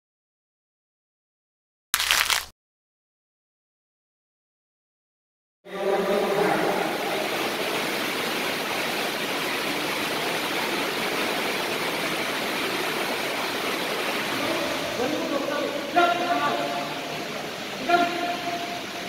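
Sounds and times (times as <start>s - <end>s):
heavy rain on a roof: 5.8s - 19.0s.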